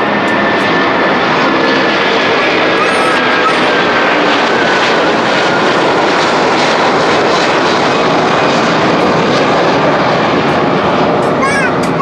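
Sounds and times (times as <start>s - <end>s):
jet engine noise: 0.0s - 12.0s.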